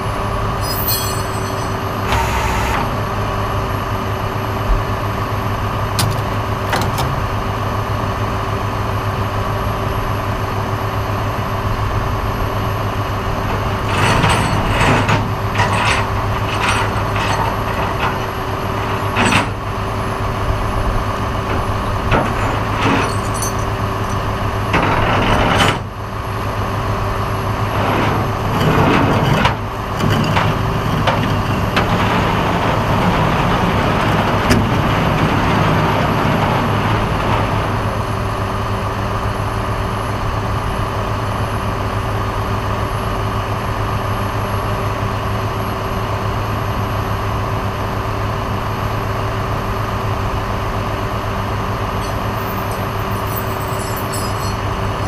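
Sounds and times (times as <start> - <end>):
light clicks and rattles: 52.0 - 54.7.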